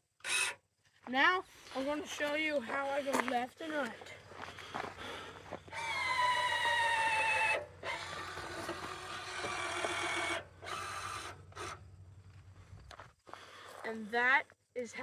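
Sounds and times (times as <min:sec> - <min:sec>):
electric steering actuator whining: 0:05.7 - 0:11.9.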